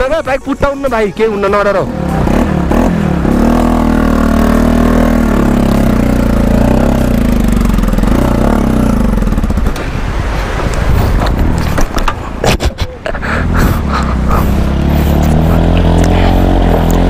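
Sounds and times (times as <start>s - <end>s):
motorcycle engine revving: 1.6s - 10.0s, 13.4s - 17.0s.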